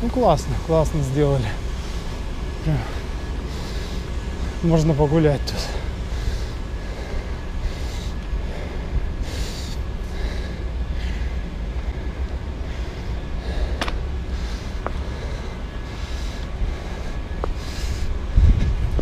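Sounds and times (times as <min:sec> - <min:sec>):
bicycle tyre hiss: 0:00.0 - 0:19.0
wind rumble on microphone: 0:05.4 - 0:19.0.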